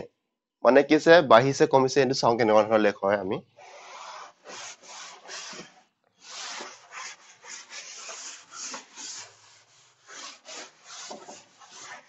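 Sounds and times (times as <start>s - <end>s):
duster scrubbing a blackboard: 3.6s - 12.0s.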